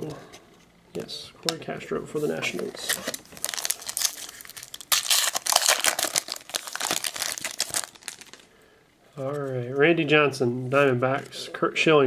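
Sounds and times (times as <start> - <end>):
card pack wrapper crackling: 2.6 - 8.5.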